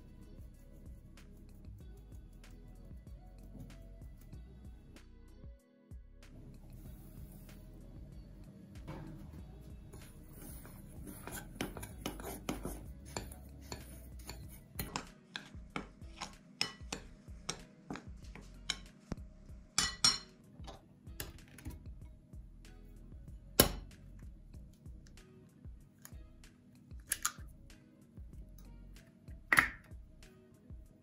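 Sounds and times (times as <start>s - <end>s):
spoon clinking in glass bowl: 16.2s - 17.6s, 19.8s - 20.3s.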